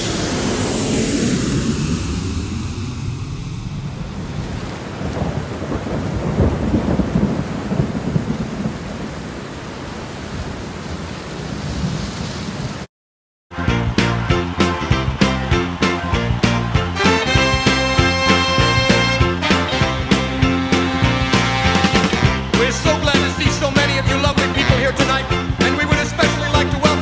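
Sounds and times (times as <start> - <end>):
rolling thunder: 0.0 - 12.9
heavy rain: 3.9 - 12.9.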